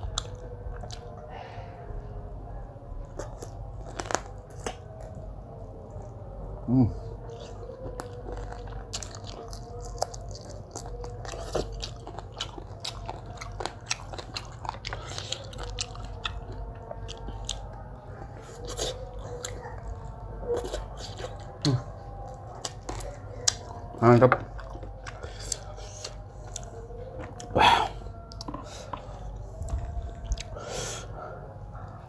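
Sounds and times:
chewing and mouth smacks: 0.0 - 1.2, 3.1 - 5.2, 7.2 - 30.6
crisp bites: 3.2 - 4.9.

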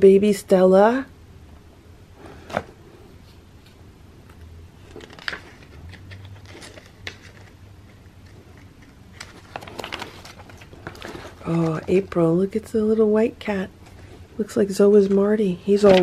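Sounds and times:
calendar pages rustling: 4.8 - 12.6, 13.8 - 16.0.

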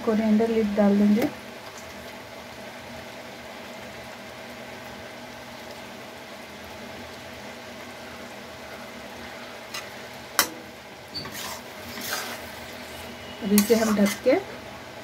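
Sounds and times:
curry bubbling and sizzling: 0.0 - 15.0
spatula scraping through curry: 11.2 - 14.4.

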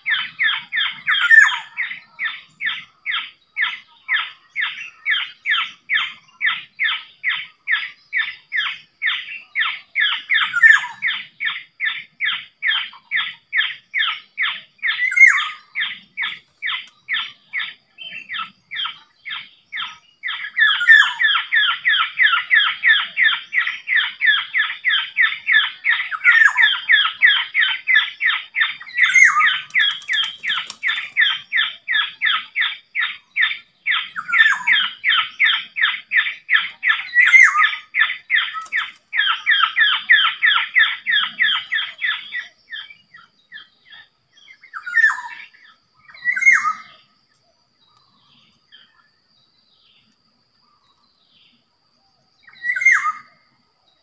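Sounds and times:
rapid bird chattering: 0.1 - 42.9.

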